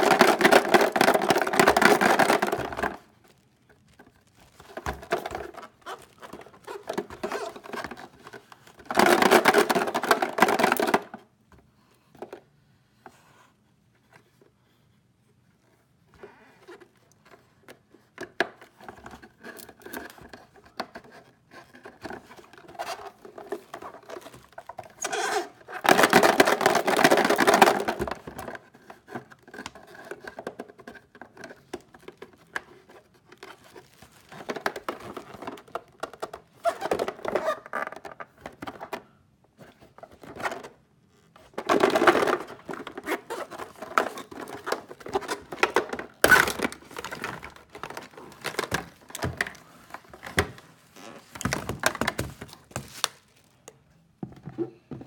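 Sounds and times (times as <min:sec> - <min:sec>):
plastic eggs knocking: 0:00.0 - 0:03.1, 0:08.8 - 0:11.1, 0:25.8 - 0:28.4, 0:41.5 - 0:50.6.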